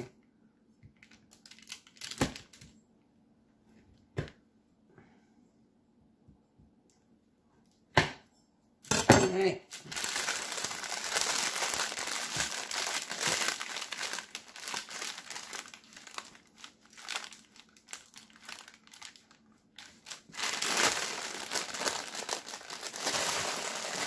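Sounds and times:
parchment paper crinkling: 1.0 - 2.7, 9.7 - 24.0.

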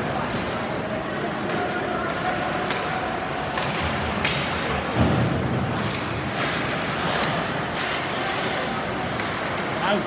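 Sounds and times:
arena noise: 0.0 - 10.0.

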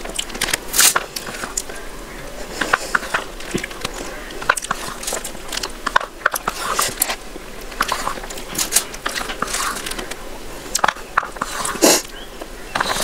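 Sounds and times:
spoon scraping a paper cup: 11.2 - 12.1.

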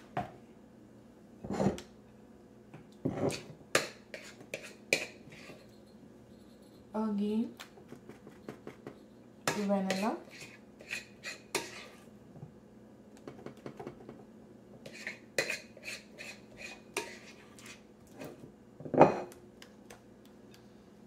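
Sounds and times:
spoon scraping glass bowl: 4.1 - 5.8, 9.5 - 12.1, 14.8 - 18.4.

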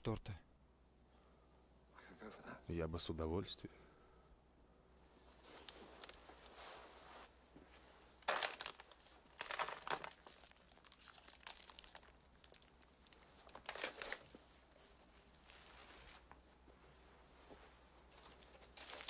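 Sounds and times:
cake crinkling and tearing: 8.2 - 14.7, 18.4 - 19.0.

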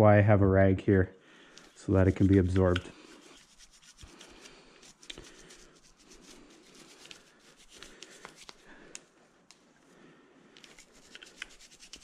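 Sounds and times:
toothbrush scratching on metal: 1.6 - 8.6, 10.7 - 12.0.

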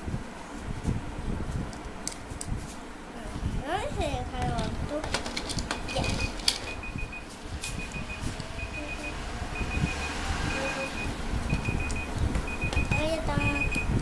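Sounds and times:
low steady hum: 0.0 - 14.0
high electronic trilling beeps: 7.8 - 14.0.

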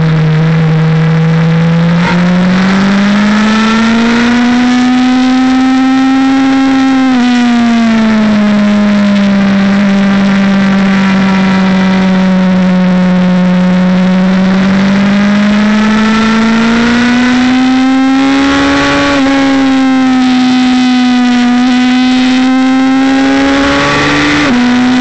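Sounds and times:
motorcycle engine running hard: 0.0 - 25.0
wind rush on microphone: 7.3 - 13.6.

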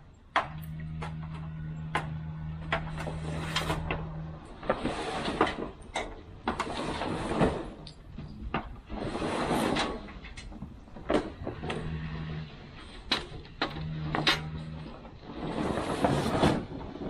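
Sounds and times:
scraping sliding noise: 0.0 - 17.0
steady low hum: 0.0 - 17.0
sharp clicks and knocks: 0.3 - 9.1, 9.7 - 15.2.

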